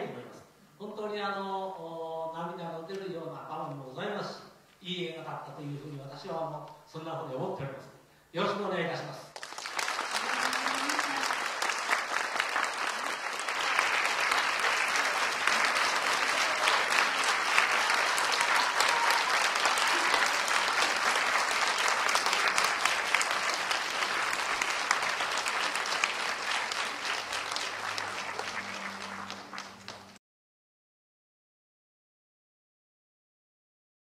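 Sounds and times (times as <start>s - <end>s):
audience applauding: 9.4s - 30.2s.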